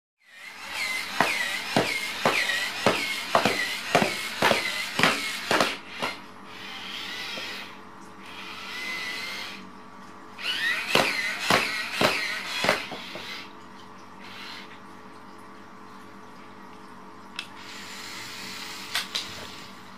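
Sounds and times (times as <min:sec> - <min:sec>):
toy robot motor whining: 0:00.2 - 0:09.6, 0:10.4 - 0:13.5
robot legs clacking on floor: 0:00.7 - 0:05.8.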